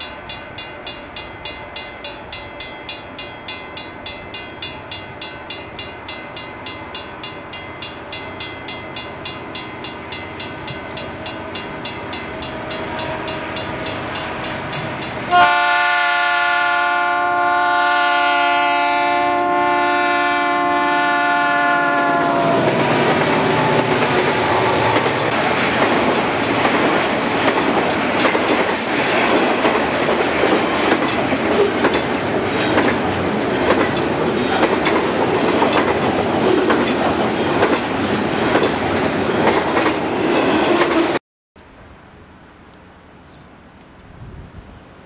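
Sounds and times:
locomotive air horn: 15.2 - 25.0
train wheels clicking over rails: 22.6 - 41.2.

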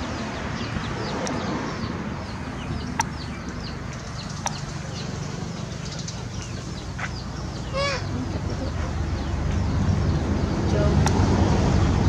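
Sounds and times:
birds chirping: 0.0 - 11.9
sharp clicks: 3.0 - 4.7.

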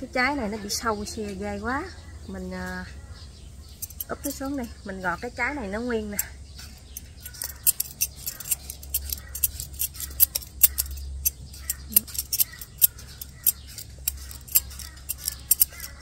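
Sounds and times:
steady low hum: 0.0 - 16.0
knife scraping fruit skin: 6.1 - 16.0.

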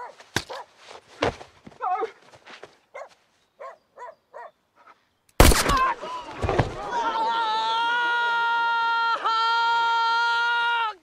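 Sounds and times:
dog barking: 0.0 - 0.7, 2.9 - 4.6.

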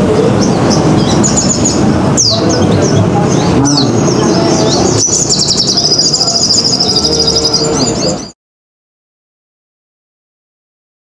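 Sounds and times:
bird chirping and trilling: 0.0 - 8.4.

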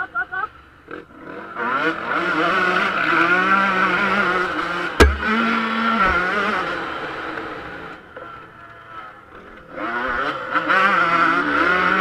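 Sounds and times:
two-stroke motocross engine revving: 0.9 - 7.8, 9.6 - 12.0
sharp knock: 5.0 - 5.5.

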